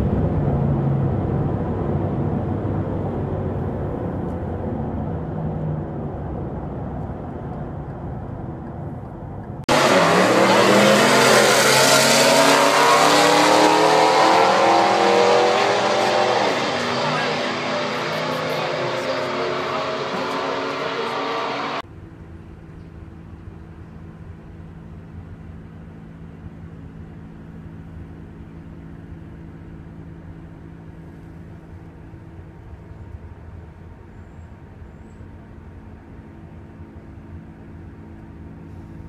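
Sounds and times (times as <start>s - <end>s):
loud sound: 9.7s - 21.8s
car engine idling: 14.8s - 39.0s.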